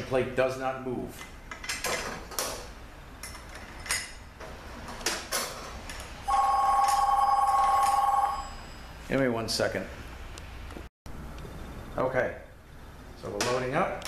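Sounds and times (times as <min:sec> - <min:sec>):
telephone ringing: 0:06.3 - 0:08.7.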